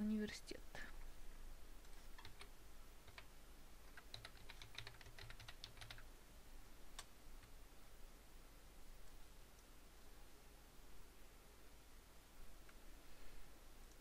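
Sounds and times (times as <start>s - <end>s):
typing on computer keyboard: 2.1s - 3.3s, 3.9s - 6.1s.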